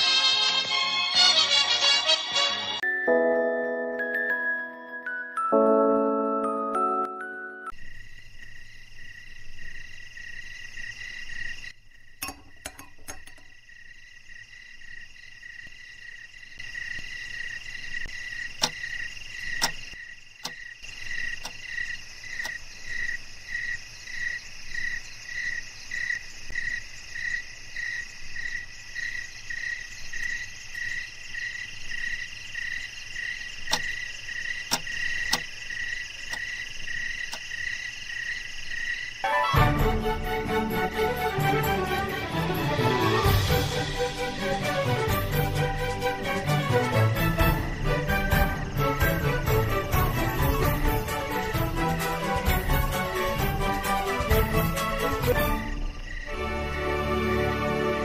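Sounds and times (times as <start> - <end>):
crickets or frogs chirping: 7.2 - 58.0
sharp clicks: 18.5 - 20.6, 21.4 - 21.7, 33.7 - 34.0, 34.7 - 35.6.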